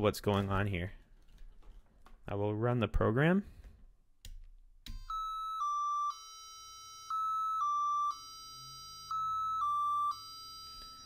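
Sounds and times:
electronic beep tones: 0:05.0 - 0:11.0.

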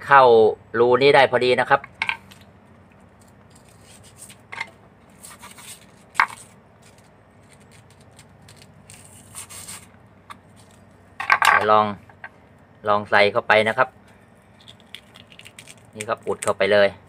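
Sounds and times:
knife cutting styrofoam: 0:05.2 - 0:06.5, 0:07.4 - 0:09.9.

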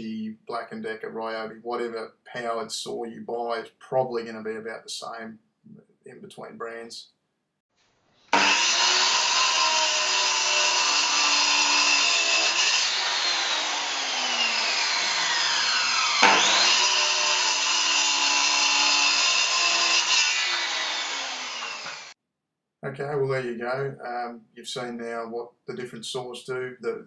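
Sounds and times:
circular saw cutting timber: 0:08.3 - 0:22.2.

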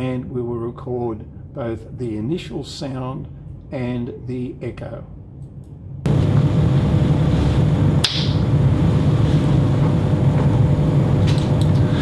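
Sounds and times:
steady low hum: 0:00.0 - 0:12.0
finger snap: 0:08.0 - 0:08.4.

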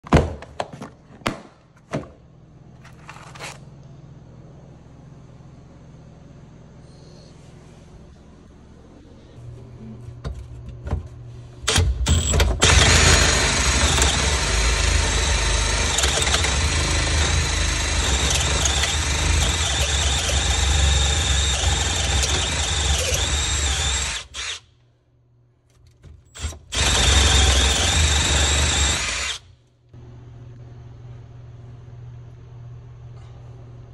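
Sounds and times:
faint steady hum: 0:02.0 - 0:11.8
drill cutting squealing plastic: 0:12.1 - 0:24.6, 0:26.3 - 0:29.4.

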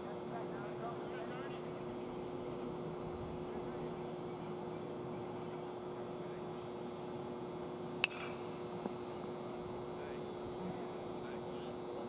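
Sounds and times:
electrical hum: 0:00.0 - 0:12.0
sharp ringing crack: 0:08.0 - 0:08.6.

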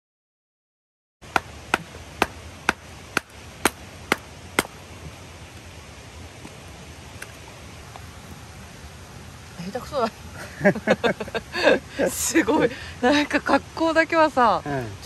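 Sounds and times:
axe chopping firewood: 0:01.2 - 0:04.8.

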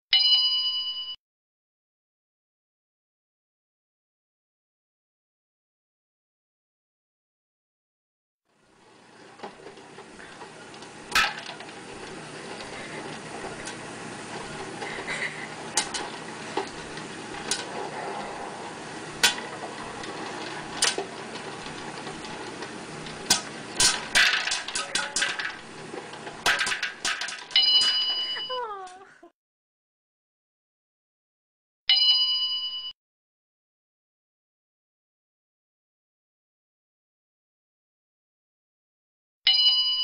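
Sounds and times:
popcorn popper hissing: 0:08.6 - 0:29.0
popcorn kernels popping: 0:09.2 - 0:17.7, 0:19.0 - 0:28.3.

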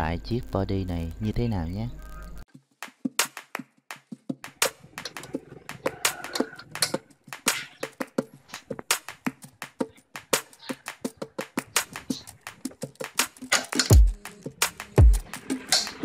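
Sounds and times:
percussive click music: 0:02.8 - 0:08.2, 0:08.9 - 0:16.0.

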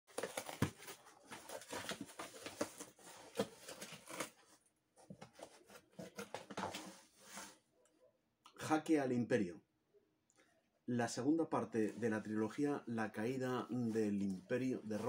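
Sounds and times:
cardboard box rustling and crackling: 0:00.1 - 0:04.5.

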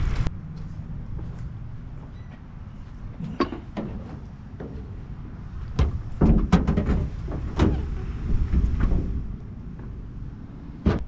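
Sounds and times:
knocks and clunks: 0:03.2 - 0:10.0, 0:10.8 - 0:11.0.

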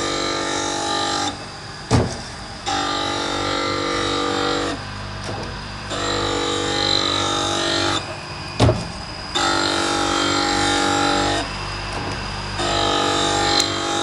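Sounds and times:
saw sharpener grinding whine: 0:00.0 - 0:05.1, 0:05.8 - 0:14.0.

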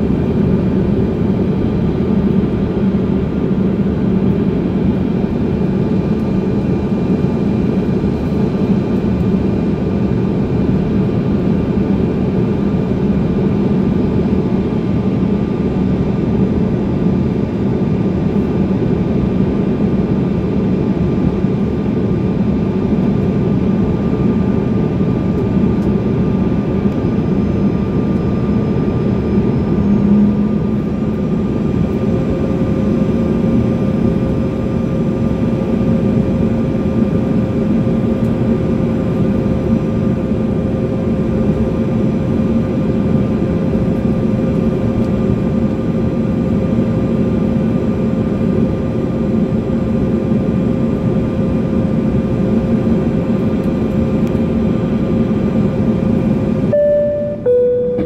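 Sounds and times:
faint steady whines: 0:00.0 - 0:58.0
plane engine drone in cabin: 0:00.0 - 0:58.0
faint tone: 0:56.7 - 0:58.0.

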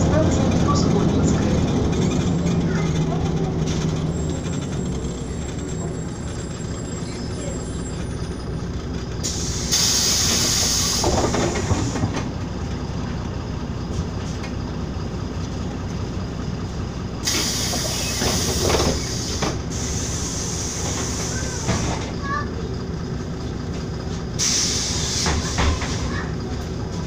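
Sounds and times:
bus engine drone: 0:00.0 - 0:27.0
air hissing: 0:09.2 - 0:12.0, 0:17.2 - 0:22.0, 0:24.4 - 0:26.0.

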